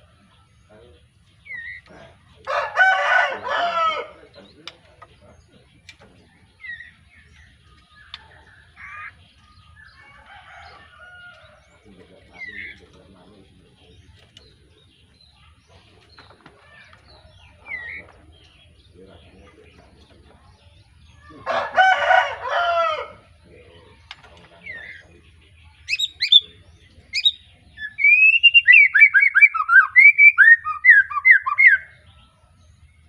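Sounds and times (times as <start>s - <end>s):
rooster crowing: 2.4s - 4.2s, 9.9s - 11.8s, 21.2s - 23.3s.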